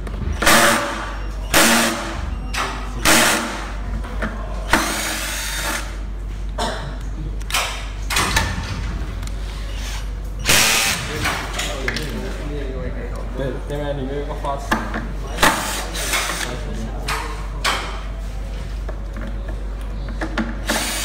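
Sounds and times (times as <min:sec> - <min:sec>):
cordless drill-driver whirring: 0:10.4 - 0:11.0, 0:20.6 - 0:21.0.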